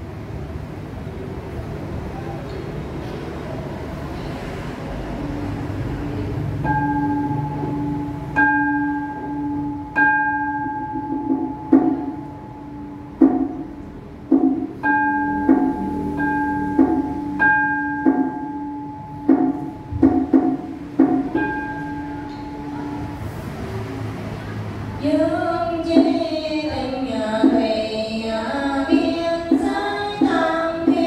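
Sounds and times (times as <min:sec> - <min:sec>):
dull percussion strikes: 0:06.2 - 0:31.0
bowl bell ringing: 0:06.6 - 0:13.6, 0:14.8 - 0:20.4, 0:21.1 - 0:23.6.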